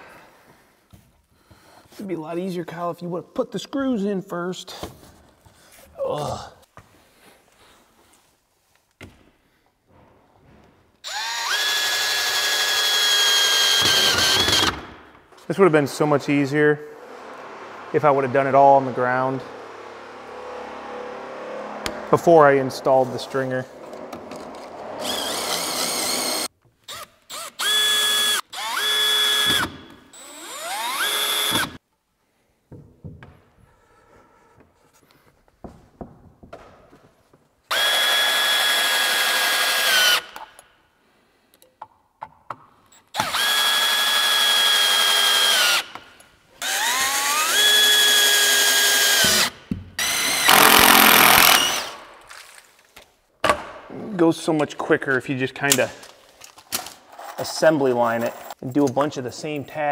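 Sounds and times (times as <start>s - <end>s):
cordless drill whining: 11.0s - 14.9s, 23.9s - 31.8s, 37.7s - 40.4s, 43.1s - 46.0s, 46.6s - 52.0s.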